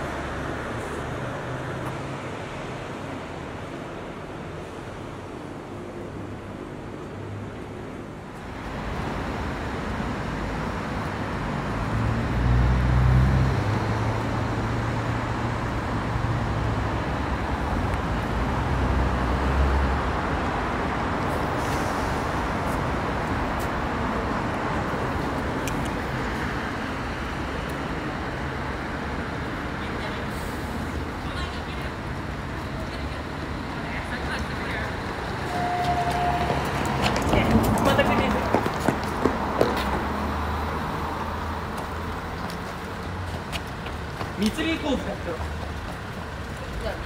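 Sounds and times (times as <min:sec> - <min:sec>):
cars driving past: 0:00.0 - 0:47.0.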